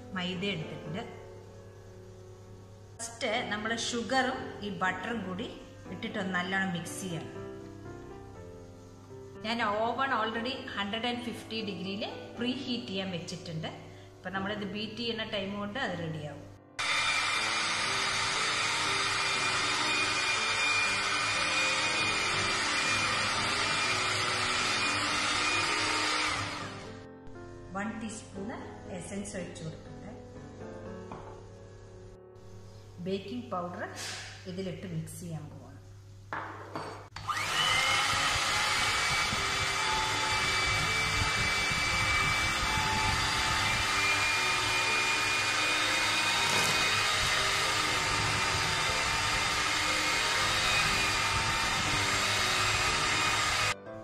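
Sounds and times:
electric mixer running: 16.8s - 27.0s, 37.2s - 53.8s.

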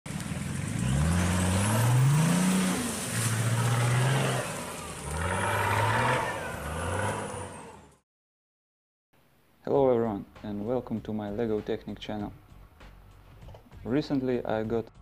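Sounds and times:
vehicle engine revving: 0.1s - 8.0s.

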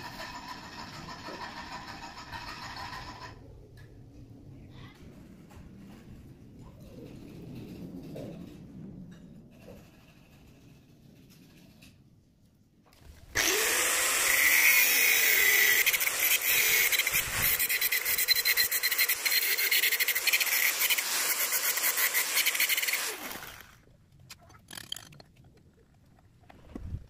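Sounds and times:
angle grinder grinding steel: 13.4s - 23.8s.

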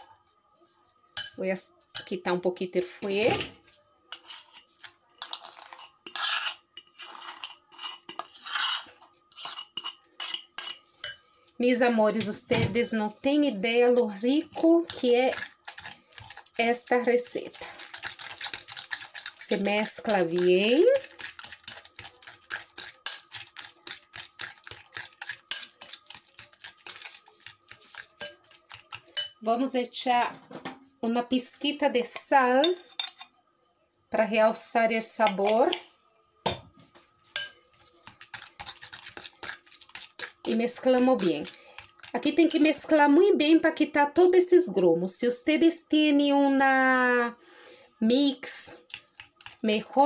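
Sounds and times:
utensil scraping food off plate: 4.2s - 10.9s.

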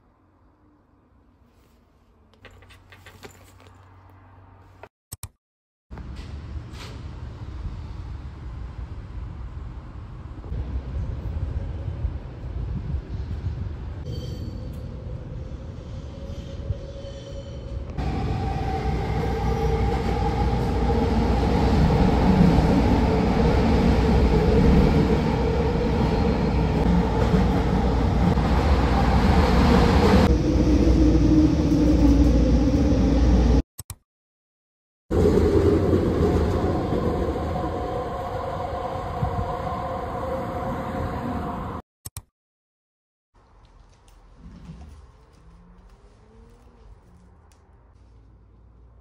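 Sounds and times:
metro train rumbling: 6.0s - 33.6s, 35.1s - 41.8s.

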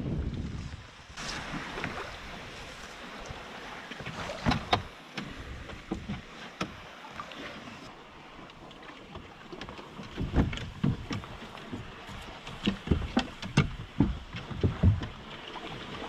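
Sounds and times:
paddle splashing in water: 0.1s - 16.0s.

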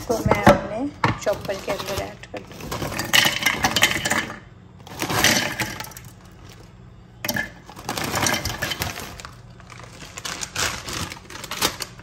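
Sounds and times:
snacks clattering into plastic bowl: 1.1s - 6.6s, 7.2s - 12.0s
snack bag crinkling: 7.7s - 12.0s.

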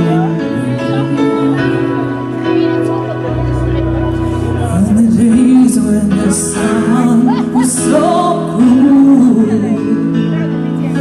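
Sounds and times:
live rock band playing: 0.0s - 11.0s
woman singing: 4.6s - 10.5s.

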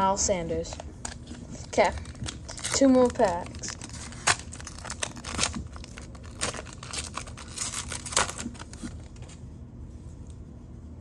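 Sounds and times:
foil wrapper crinkling and tearing: 1.0s - 9.4s.

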